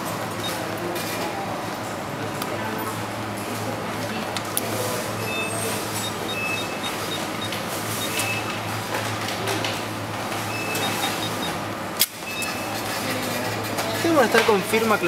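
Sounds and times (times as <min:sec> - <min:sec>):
receipt printer printing: 0:04.7 - 0:11.7.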